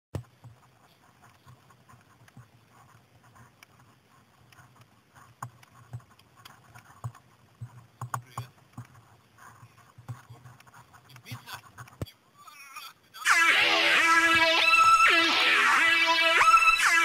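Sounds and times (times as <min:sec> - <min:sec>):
irregular clicks and knocks: 0:04.4 - 0:12.1.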